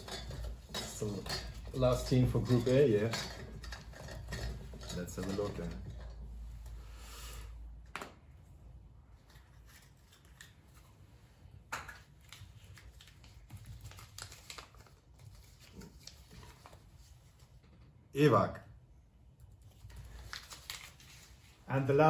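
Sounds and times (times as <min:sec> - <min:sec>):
paper rustling and crinkling: 0:12.0 - 0:17.6, 0:19.6 - 0:21.9.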